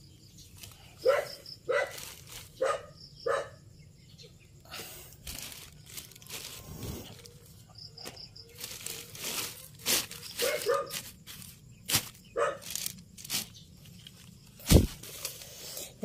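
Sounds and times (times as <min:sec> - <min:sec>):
dog barking: 0:01.0 - 0:02.0, 0:02.6 - 0:03.6, 0:10.4 - 0:11.0, 0:12.4 - 0:12.6
plastic sheeting rustling and crinkling: 0:01.8 - 0:02.7, 0:05.2 - 0:07.4, 0:08.5 - 0:15.6.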